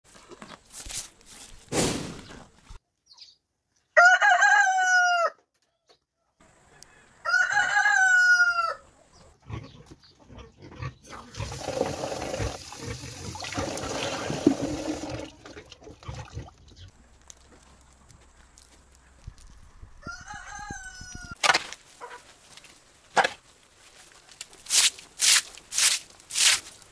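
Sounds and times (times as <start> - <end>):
rooster crowing: 4.0 - 5.4, 7.2 - 8.9, 20.0 - 21.4
water running into plastic bucket: 11.0 - 16.8.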